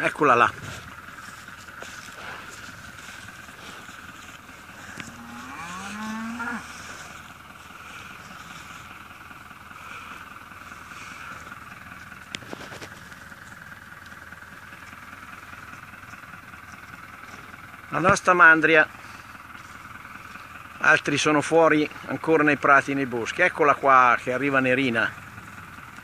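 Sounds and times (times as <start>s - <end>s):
cow mooing: 3.6s - 8.5s.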